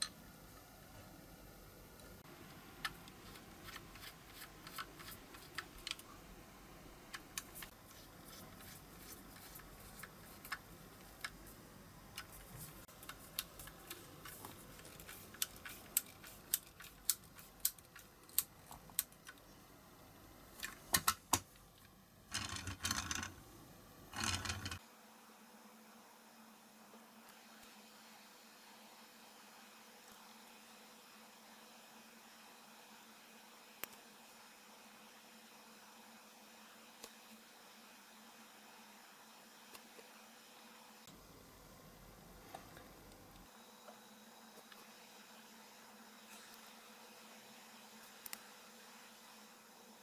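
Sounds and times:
toy car wheels rolling on mat: 22.3s - 23.4s, 24.1s - 24.8s.

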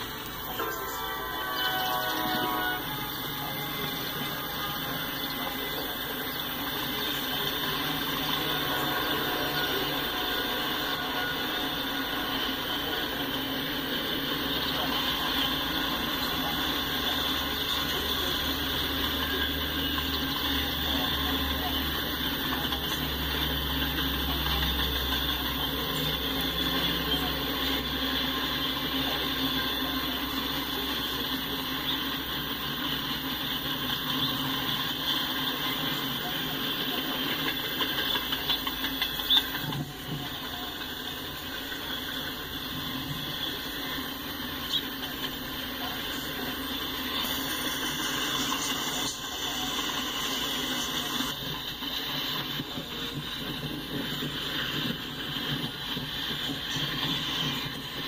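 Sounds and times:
freight train wheels on rails: 0.0s - 58.0s.

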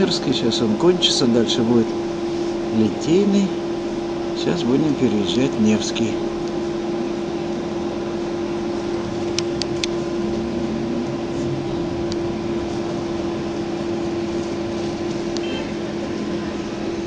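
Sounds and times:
bus ride rumble: 0.0s - 17.0s
electric hum: 0.0s - 17.0s
faint high beep: 15.4s - 15.7s.

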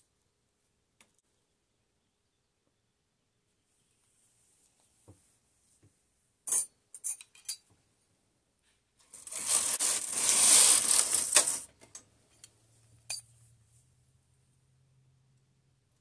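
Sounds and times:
knitting machine carriage rattle: 9.1s - 12.0s.

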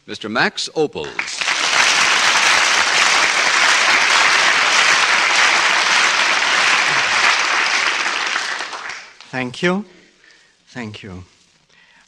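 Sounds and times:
audience applauding: 1.0s - 9.3s.

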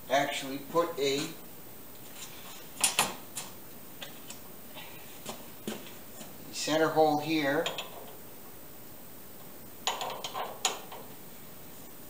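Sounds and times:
man speaking: 0.0s - 1.4s, 6.5s - 7.7s
metallic clicks and knocks: 7.6s - 8.2s, 9.8s - 11.1s.

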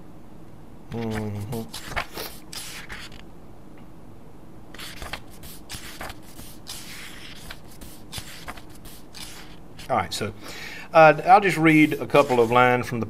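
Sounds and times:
book pages rustling: 1.0s - 3.2s, 4.8s - 9.9s, 11.7s - 12.6s.

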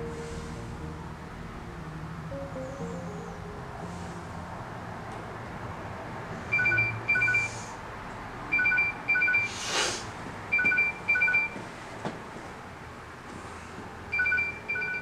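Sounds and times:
electronic alarm beeping: 6.5s - 7.6s, 8.5s - 9.5s, 10.5s - 11.6s, 14.1s - 15.0s.

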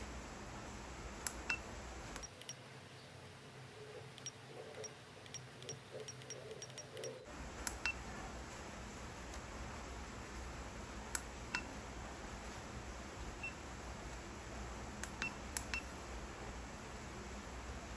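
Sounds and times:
keypad button clicks: 4.1s - 8.0s.

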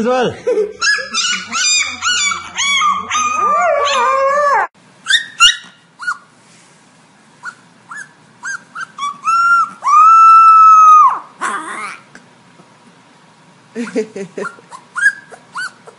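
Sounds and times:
dogs howling: 0.8s - 4.7s, 9.0s - 12.0s
puppy yipping: 0.8s - 6.3s, 7.4s - 12.0s, 14.4s - 15.9s.

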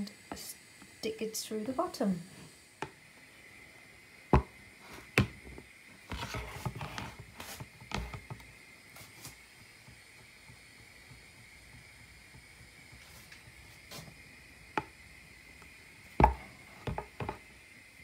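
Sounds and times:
plastic basket clattering and scraping: 6.1s - 8.2s.

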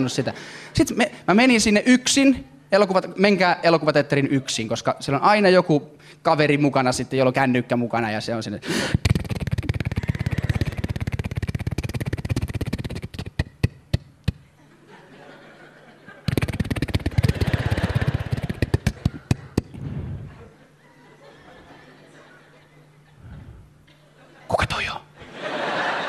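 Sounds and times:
audience laughing: 9.9s - 11.0s, 14.6s - 24.6s, 25.2s - 26.0s
audience clapping: 16.3s - 19.7s.

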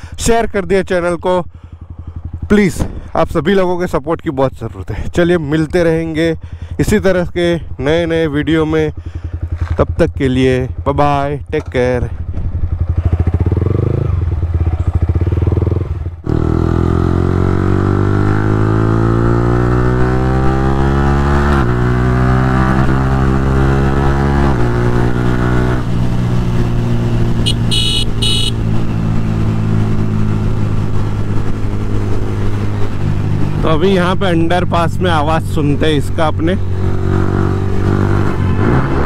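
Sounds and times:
motorcycle engine revving: 11.6s - 39.0s.

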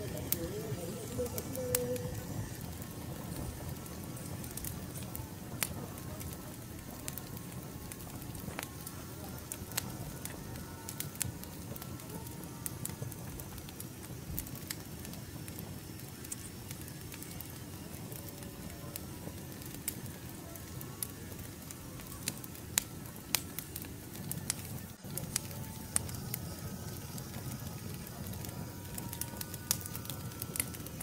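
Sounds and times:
low rush of burning: 0.0s - 31.0s
wood fire crackling and popping: 0.0s - 31.0s.

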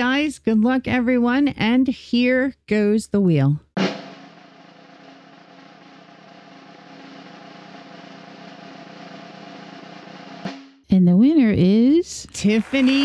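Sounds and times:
snare drum roll: 3.8s - 10.7s.

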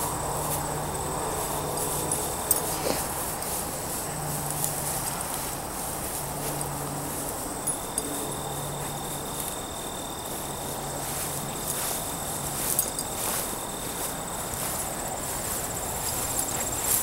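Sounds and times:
crickets chirring: 0.0s - 17.0s
dog rustling through grass: 0.0s - 17.0s
lower insect tone: 0.0s - 17.0s.

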